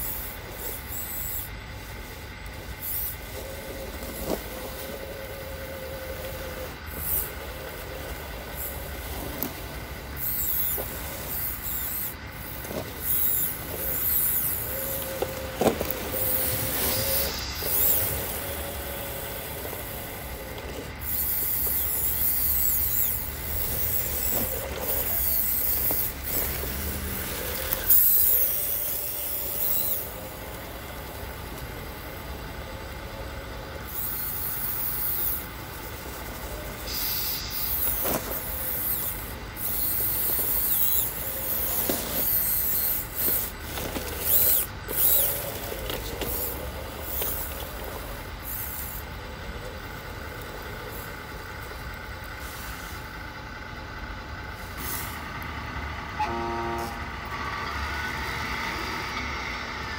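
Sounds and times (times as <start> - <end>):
model bulldozer running: 0.0 - 59.9
high hiss: 16.1 - 20.4, 33.8 - 41.6.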